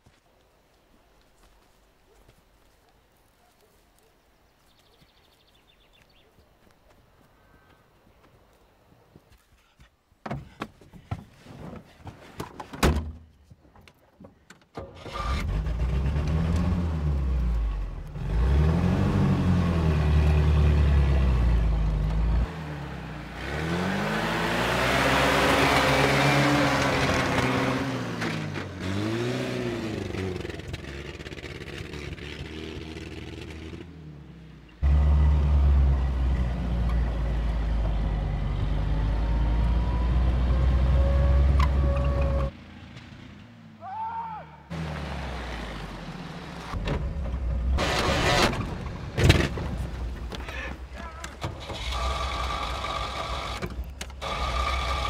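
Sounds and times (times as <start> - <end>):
off-road vehicle engine revving: 15.0 - 43.8, 44.6 - 50.6, 51.4 - 55.0.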